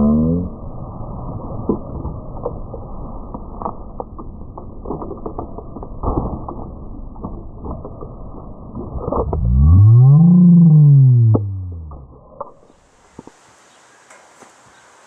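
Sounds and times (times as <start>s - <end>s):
dull pitched-down outdoor rumble: 0.0s - 13.3s
scattered clicks and knocks: 2.4s - 8.1s.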